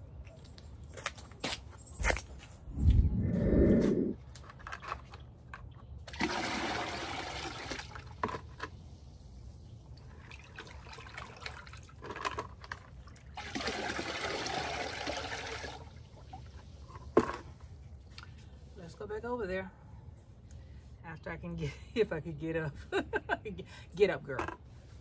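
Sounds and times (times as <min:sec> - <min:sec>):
water running into bucket: 0:06.1 - 0:08.3, 0:10.0 - 0:17.1.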